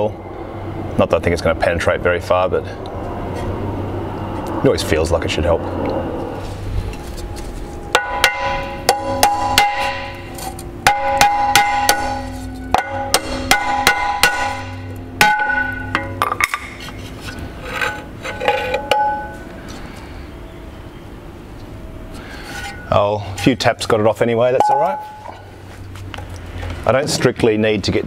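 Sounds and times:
hammer tapping on metal propeller: 7.9s - 16.6s.

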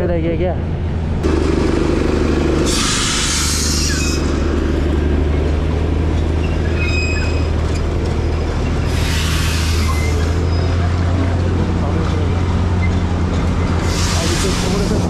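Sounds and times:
road and wind noise: 0.0s - 15.0s
scooter engine drone: 1.2s - 15.0s
burst of hiss: 2.7s - 4.2s, 13.9s - 14.9s.

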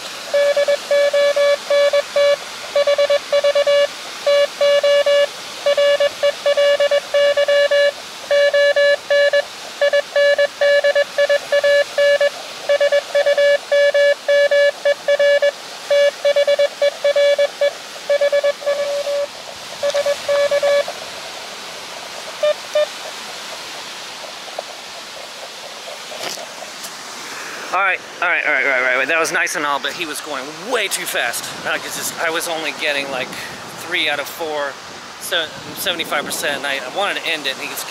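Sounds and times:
steady hiss: 0.0s - 37.9s
faint beeps: 0.3s - 20.9s, 22.4s - 23.0s
morse code tone: 0.3s - 20.9s, 22.4s - 22.9s.

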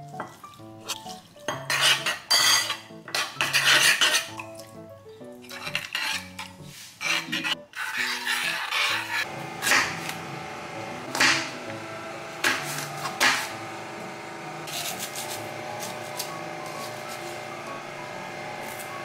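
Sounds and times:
soft background music: 0.0s - 9.2s, 10.8s - 19.0s
metal spoon scraping ceramic bowl: 1.7s - 4.3s, 5.5s - 9.3s.

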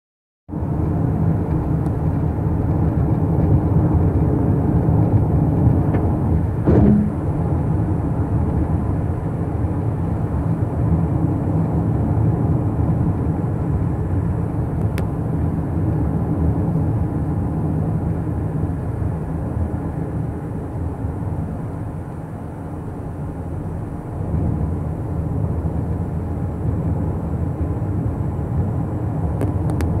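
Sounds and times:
car tyre and engine noise: 0.5s - 30.0s
short bump: 6.6s - 7.3s.

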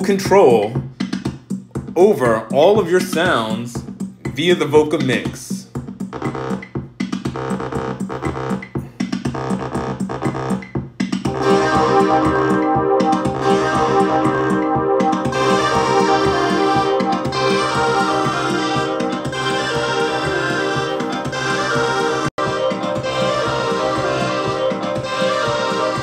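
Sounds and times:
choppy rhythmic synthesizer pattern: 0.0s - 26.0s
sustained synthesizer chords: 11.3s - 26.0s.

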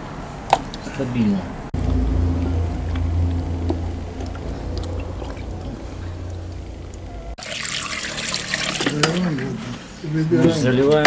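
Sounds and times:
low rumble: 1.8s - 7.4s
liquid trickling and splashing: 7.4s - 9.6s.

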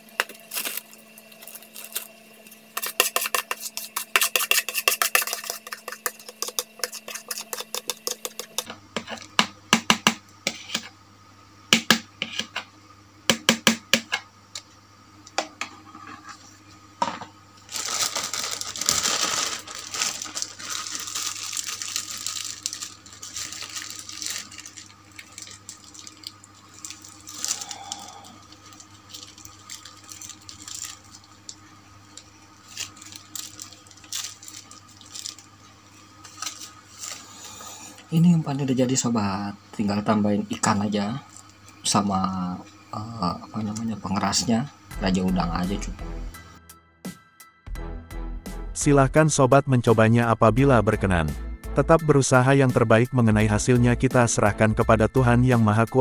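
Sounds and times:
plastic bag crinkling: 0.0s - 2.5s, 17.7s - 35.5s, 36.2s - 37.4s.

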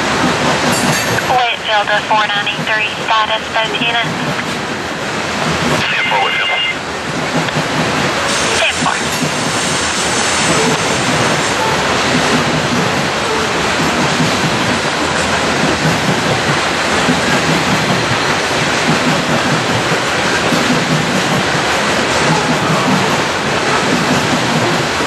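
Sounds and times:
steel wheels running on rails: 0.0s - 1.5s, 2.1s - 25.0s.

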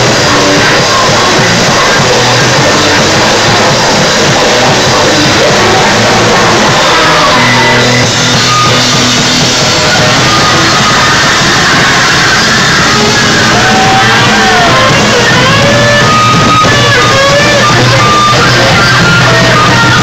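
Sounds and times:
drum kit: 0.0s - 20.0s
electric guitars: 0.0s - 20.0s.

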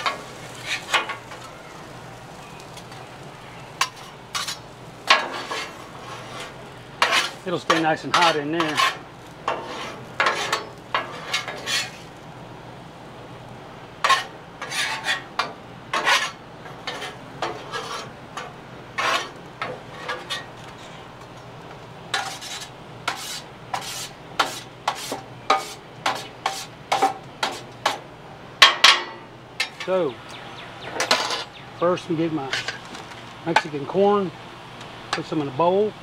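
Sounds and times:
metal spatulas scraping griddle: 0.0s - 1.5s, 3.8s - 12.1s, 14.0s - 21.1s, 22.1s - 28.0s, 31.0s - 31.5s, 32.4s - 32.8s.

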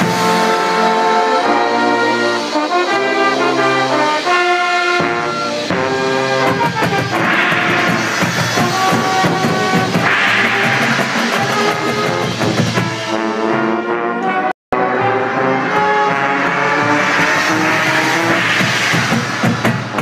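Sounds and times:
brass section playing held chords: 0.0s - 18.9s
marching drumline: 2.5s - 13.2s, 16.5s - 20.0s.

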